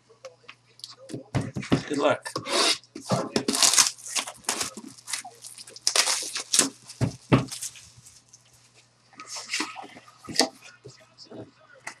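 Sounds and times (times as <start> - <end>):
plastic shrink wrap tearing: 3.5 - 8.5
dull thumps: 6.6 - 7.7.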